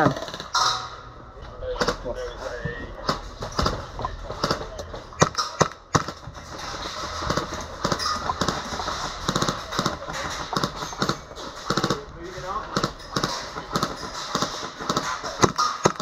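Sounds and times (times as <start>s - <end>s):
airsoft gun shots: 12.8s - 16.0s.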